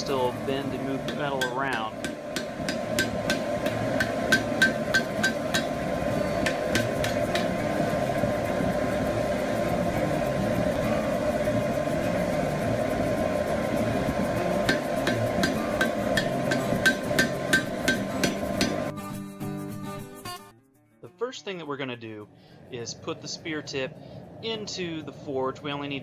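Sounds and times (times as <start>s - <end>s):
hammer striking hot steel on anvil: 0.0s - 8.1s, 13.8s - 18.9s.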